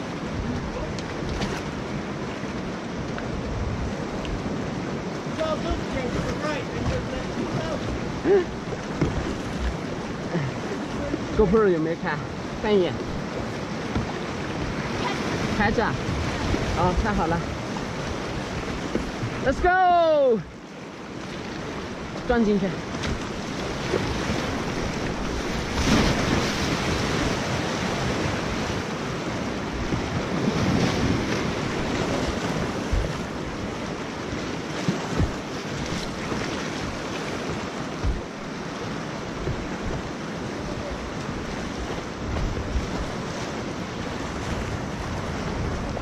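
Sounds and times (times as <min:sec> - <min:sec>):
paddles splashing: 0:00.0 - 0:46.0
rushing whitewater roar: 0:00.0 - 0:46.0
wind buffeting microphone: 0:21.5 - 0:46.0
low knocks: 0:38.0 - 0:38.5, 0:39.4 - 0:40.1.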